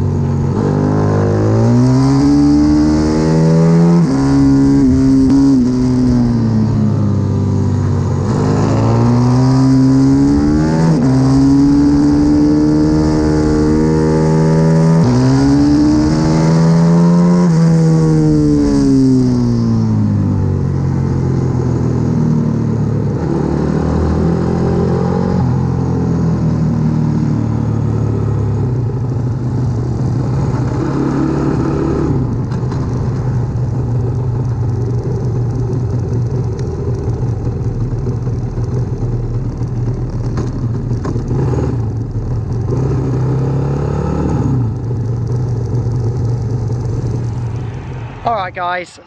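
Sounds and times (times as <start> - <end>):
motorbike engine revving: 8.2 - 22.2.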